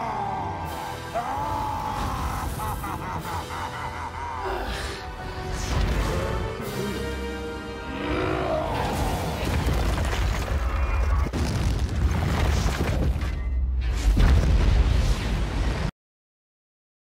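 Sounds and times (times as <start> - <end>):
music: 0.0 - 11.0
booming rumbling explosions: 8.6 - 15.9.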